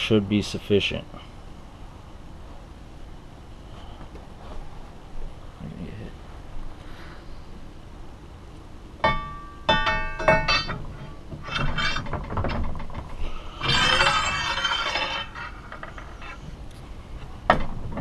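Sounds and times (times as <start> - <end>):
metal-on-metal clinks: 9.0 - 12.1, 13.6 - 16.4
metal bar scraping in housing: 9.1 - 16.6.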